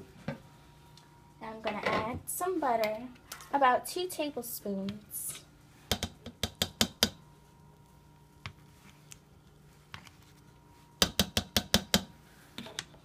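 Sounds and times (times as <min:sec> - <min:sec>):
utensil tapping inside a pot: 0:05.9 - 0:07.2, 0:11.0 - 0:12.1.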